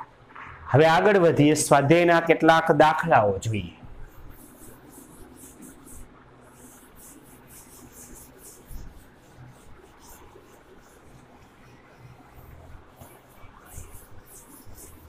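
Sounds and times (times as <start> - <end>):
duster wiping chalkboard: 3.5 - 15.0.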